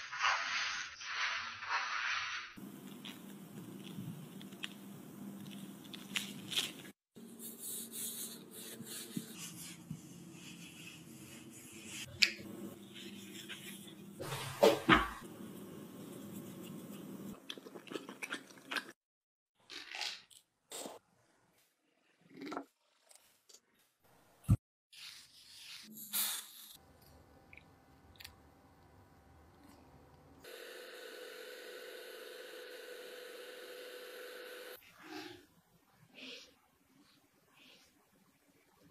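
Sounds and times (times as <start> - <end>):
electric hand mixer humming: 30.4 - 34.8.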